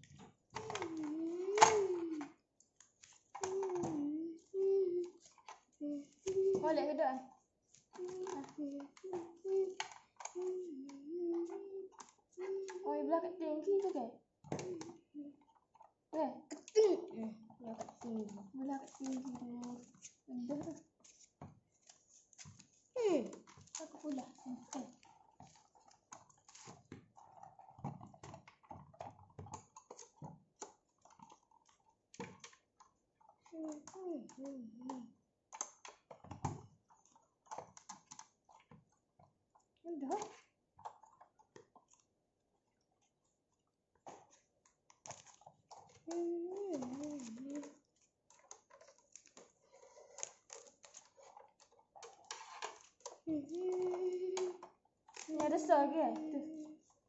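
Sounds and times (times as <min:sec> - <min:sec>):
plastic parts clicking: 0:00.0 - 0:04.0, 0:07.7 - 0:12.9, 0:44.1 - 0:56.7.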